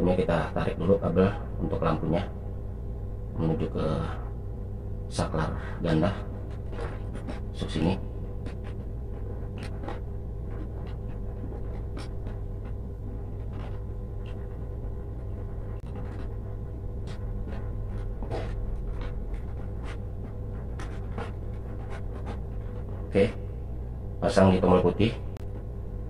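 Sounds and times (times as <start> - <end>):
low background hum: 0.0 - 26.0
wires rustling and scraping: 5.2 - 23.6.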